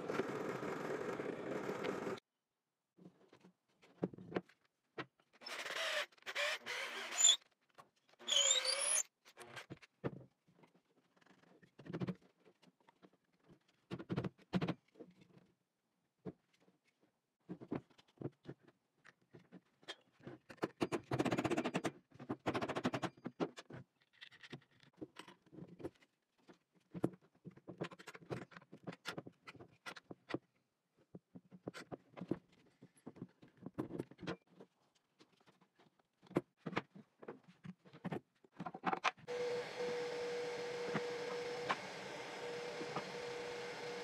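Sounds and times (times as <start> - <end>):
machine whirring: 39.3 - 44.0.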